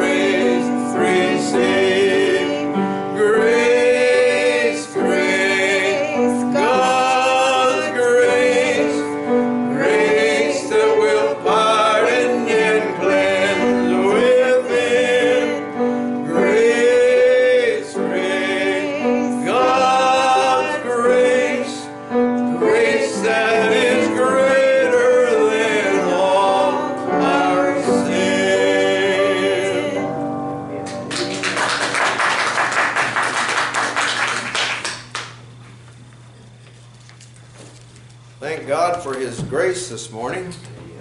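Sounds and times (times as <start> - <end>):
man and woman singing a hymn: 0.0 - 30.6
applause: 30.9 - 35.4.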